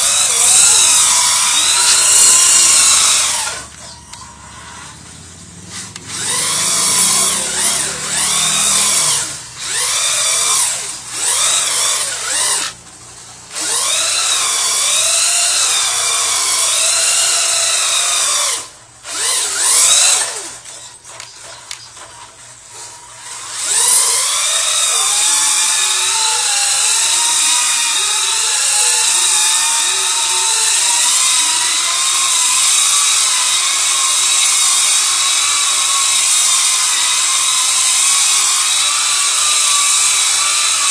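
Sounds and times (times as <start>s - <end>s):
rc truck motor whining: 0.0s - 40.9s.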